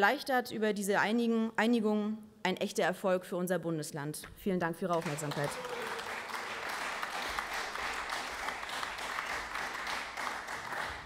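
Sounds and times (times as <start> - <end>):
crowd applauding: 4.9 - 11.0.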